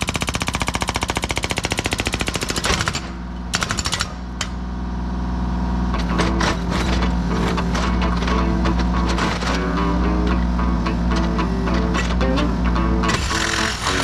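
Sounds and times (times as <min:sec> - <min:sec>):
hydraulic breaker hammer pounding rock: 0:00.0 - 0:04.6, 0:06.0 - 0:10.1, 0:13.0 - 0:14.0
diesel engine running: 0:03.1 - 0:14.0.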